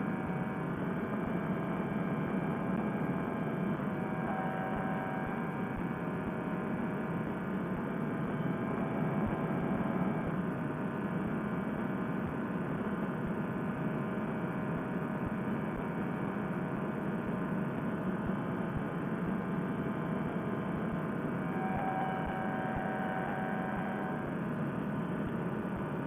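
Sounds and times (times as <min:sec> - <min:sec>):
paramotor engine droning: 0:04.0 - 0:05.8, 0:21.4 - 0:24.3.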